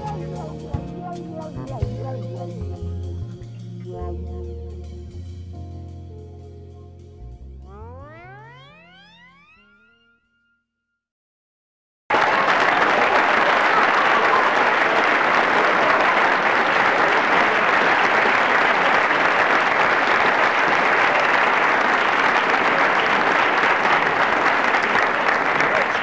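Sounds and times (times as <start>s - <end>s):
audience applauding: 12.1s - 26.0s.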